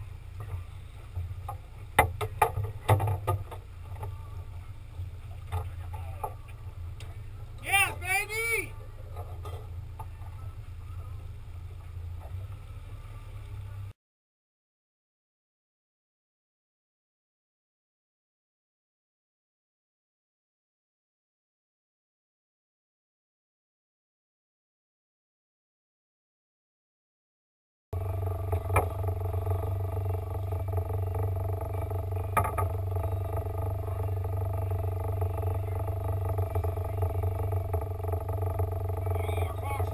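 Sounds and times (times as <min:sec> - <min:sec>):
outboard boat engine rumble: 0:00.0 - 0:14.0, 0:28.0 - 0:39.9.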